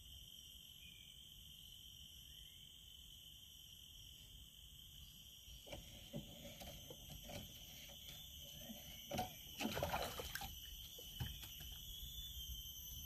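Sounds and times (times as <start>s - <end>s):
high-pitched insect chorus: 0.0s - 13.0s
water sloshing and splashing: 8.5s - 11.8s.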